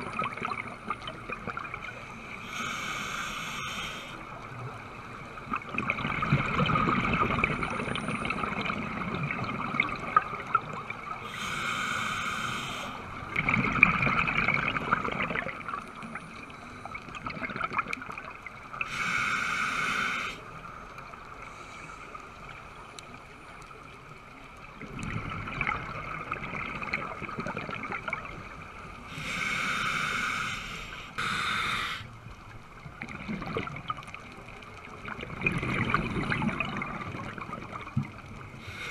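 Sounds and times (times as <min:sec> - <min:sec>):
hissing regulator breath: 0:02.1 - 0:04.2, 0:11.2 - 0:13.0, 0:18.8 - 0:20.4, 0:29.1 - 0:32.1, 0:38.6 - 0:38.9
bubbling exhaust bubbles: 0:05.4 - 0:10.9, 0:13.3 - 0:15.8, 0:33.0 - 0:34.2, 0:35.0 - 0:38.2.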